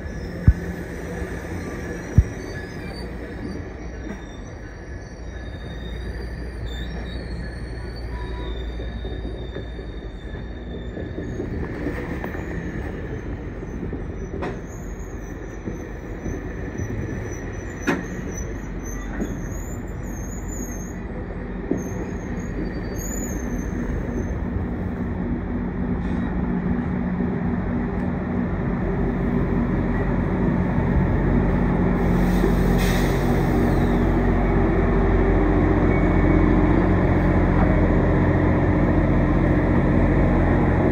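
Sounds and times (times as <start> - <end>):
high wheel squeal: 0.0 - 24.6, 30.0 - 39.2
diesel locomotive engine: 0.0 - 40.9
train coaches rolling on rails: 0.0 - 40.9.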